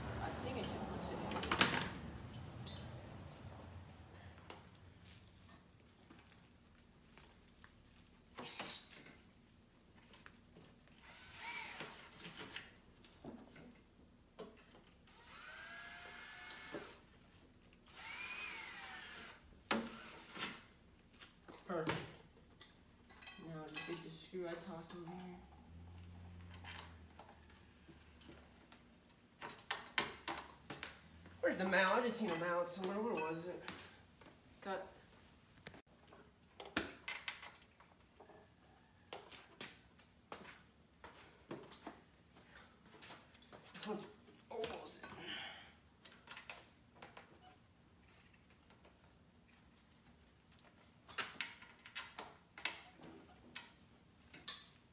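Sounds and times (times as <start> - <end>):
cordless drill whining: 11.0 - 12.2, 15.1 - 17.0, 17.9 - 20.7.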